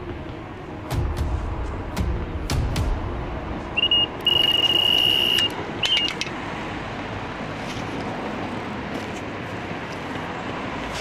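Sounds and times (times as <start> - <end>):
bite alarm beeps: 3.8 - 6.1
continuous high alarm tone: 3.8 - 6.2.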